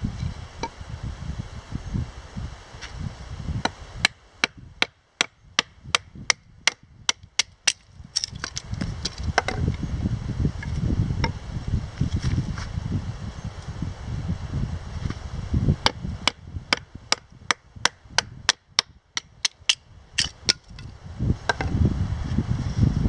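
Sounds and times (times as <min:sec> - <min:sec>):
wooden baton striking knife spine: 0:19.4 - 0:20.9.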